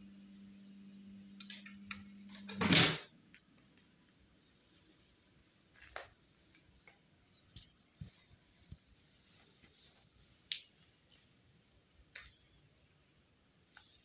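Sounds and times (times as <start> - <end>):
soft scuffing rustle: 7.5 - 11.4.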